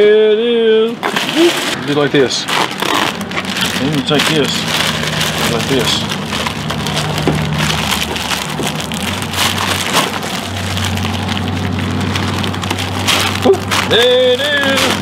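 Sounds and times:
plastic bag crinkling: 0.8s - 15.0s.

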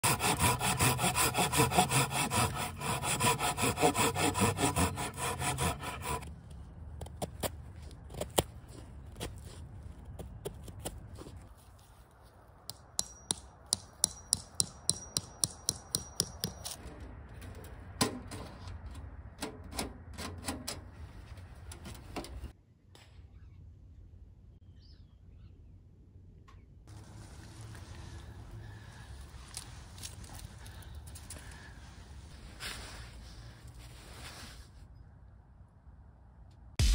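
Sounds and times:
saw cutting through log: 0.0s - 6.3s
tent stake hammered in ground: 12.7s - 16.8s.

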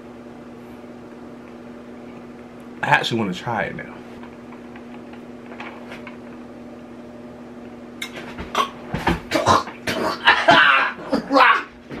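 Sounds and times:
steady low hum: 0.0s - 12.0s
man sputtering: 8.5s - 11.7s.

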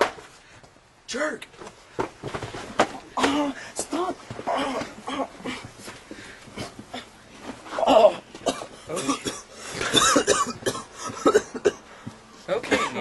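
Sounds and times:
person coughing and spluttering: 7.8s - 11.8s, 12.7s - 13.0s.

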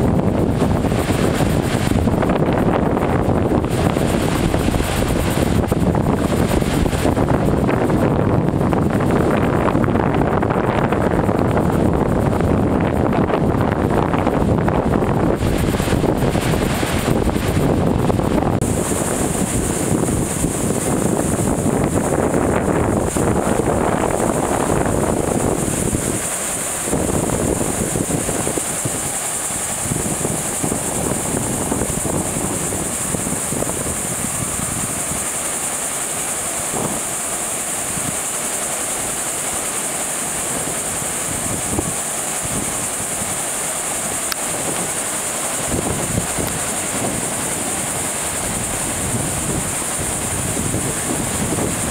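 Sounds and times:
steady high hiss: 0.0s - 51.9s
wind buffeting microphone: 0.0s - 51.9s
ocean surf breaking: 15.1s - 51.9s.

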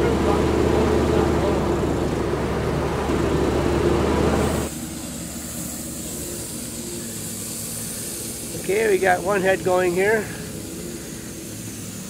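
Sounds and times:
air compressor running: 0.0s - 12.0s
compressed air hissing: 3.8s - 12.0s.

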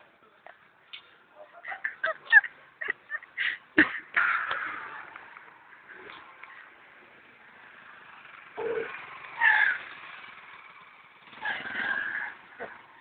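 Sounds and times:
motorcycle engine running: 4.2s - 13.0s.

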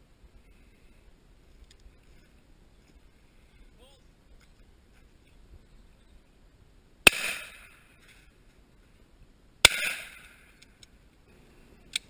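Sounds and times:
shotgun shots: 7.0s - 7.9s, 9.6s - 10.6s.

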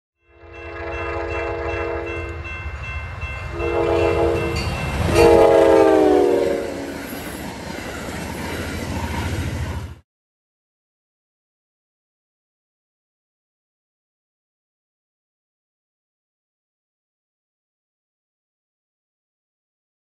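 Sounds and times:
train air horn blasts: 0.2s - 2.4s, 3.5s - 7.0s
train rumbling by: 0.4s - 10.0s.

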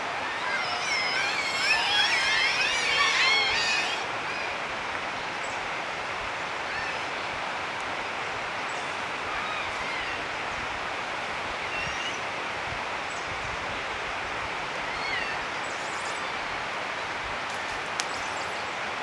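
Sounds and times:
chorus of warbling calls: 0.0s - 4.6s
rushing outdoor background noise: 0.0s - 19.0s.

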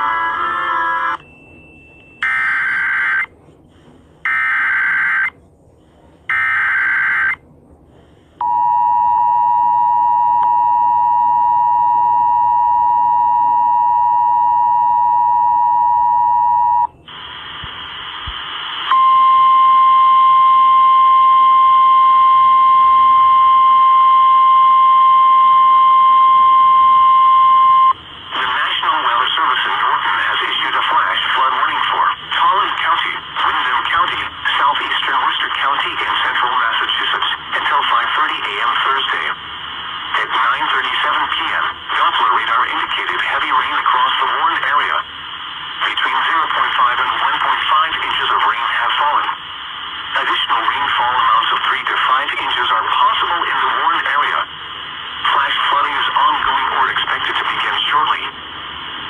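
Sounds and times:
radio static: 17.1s - 19.0s, 25.8s - 58.4s.

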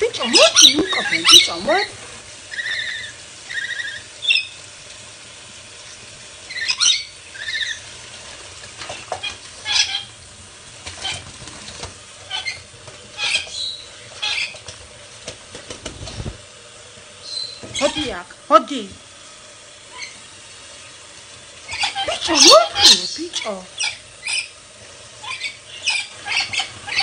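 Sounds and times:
running tap: 0.0s - 27.0s
buzzy squeaking bird chirps: 0.1s - 1.9s, 2.5s - 4.6s, 6.5s - 7.8s, 9.2s - 10.1s, 12.3s - 12.6s, 13.2s - 14.6s, 17.2s - 18.2s, 19.9s - 20.2s, 21.7s - 24.6s, 25.2s - 27.0s
bird wing-flapping and splashing: 5.8s - 16.6s, 19.9s - 27.0s.

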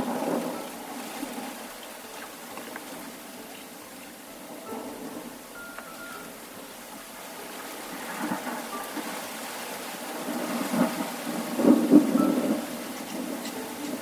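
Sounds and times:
thunder rolling: 0.0s - 1.7s, 6.0s - 14.0s
steady rain: 0.0s - 14.0s.

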